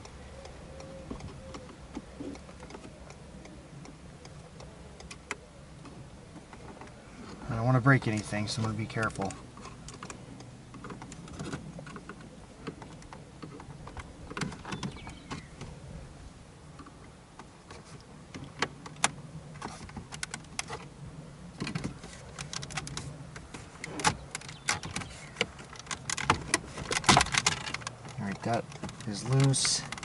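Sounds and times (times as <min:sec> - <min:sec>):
plastic trim clicking and creaking: 0:08.0 - 0:15.7, 0:16.8 - 0:20.9, 0:21.6 - 0:30.0.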